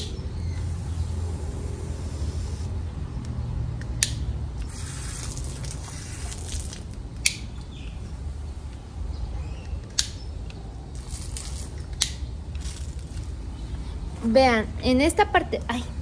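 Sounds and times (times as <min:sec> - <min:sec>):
hose spraying water onto grass: 0:00.6 - 0:02.7, 0:04.6 - 0:07.0.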